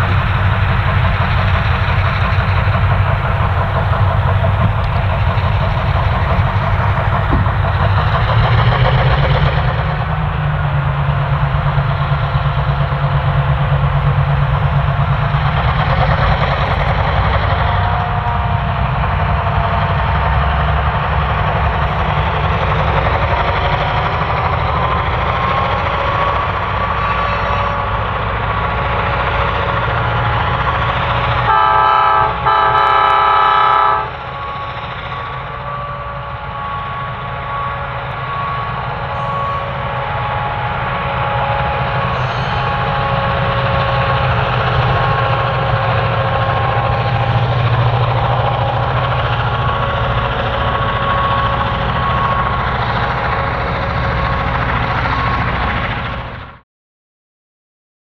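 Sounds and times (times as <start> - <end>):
locomotive engine rumble: 0.0 - 56.6
rail noise: 0.0 - 56.6
multi-note train horn: 26.0 - 28.2, 31.4 - 44.1.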